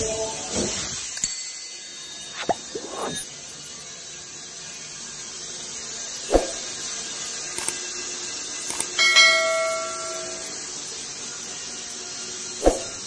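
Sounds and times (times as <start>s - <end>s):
steady background noise: 0.0s - 13.0s
metal clanging and ringing: 9.0s - 10.7s.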